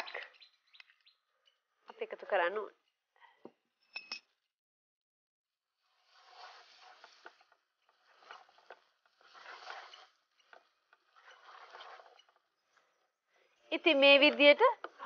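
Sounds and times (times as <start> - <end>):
spatula swishing in pan: 5.7 - 13.1.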